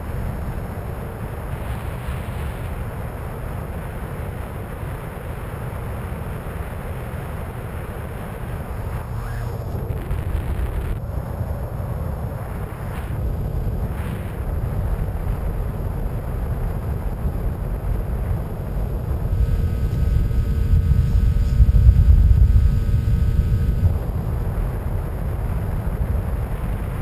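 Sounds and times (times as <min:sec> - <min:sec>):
electric motor whine: 0:08.2 - 0:11.0, 0:18.6 - 0:24.6.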